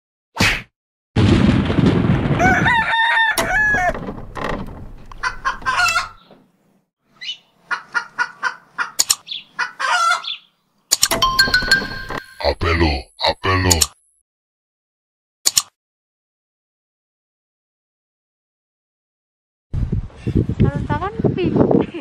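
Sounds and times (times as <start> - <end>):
short swish: 0.4 - 0.7
rising and falling animal calls: 7.1 - 10.5.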